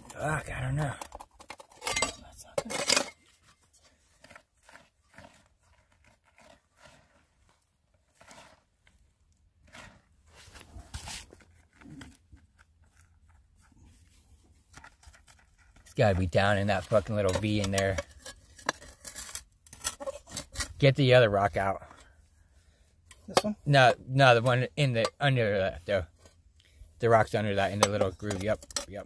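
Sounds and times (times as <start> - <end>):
rocks and gravel scraping: 0.0 - 14.0, 14.6 - 21.9, 23.2 - 29.0.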